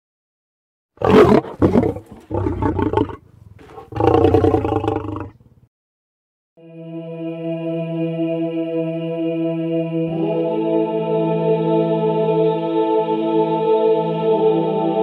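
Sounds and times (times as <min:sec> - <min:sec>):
lion roaring: 0:01.0 - 0:05.4.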